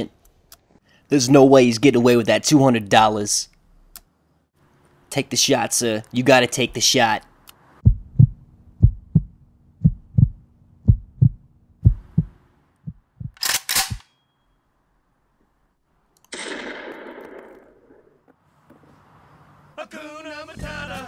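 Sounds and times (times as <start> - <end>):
heartbeat thumps: 7.8 - 13.4
sharp cracks: 13.3 - 14.1, 16.2 - 18.4.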